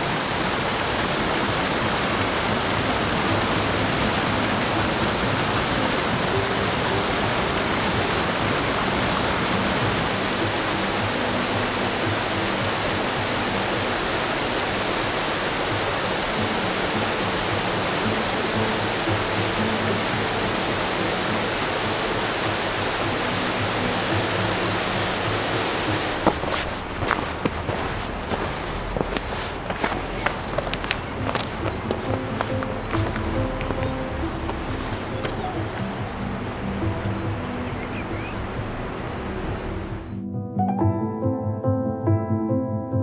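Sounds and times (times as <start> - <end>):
waterfall over rocks: 0.0 - 40.1
soft low musical notes: 0.0 - 43.0.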